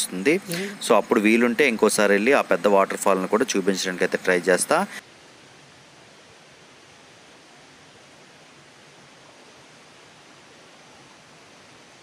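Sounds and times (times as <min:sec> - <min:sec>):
waterfall rushing: 0:00.0 - 0:05.0.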